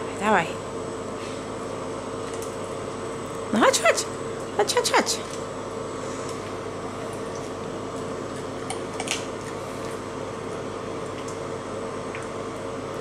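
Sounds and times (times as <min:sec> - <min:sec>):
treadmill machine hum and hiss: 0:00.0 - 0:08.3.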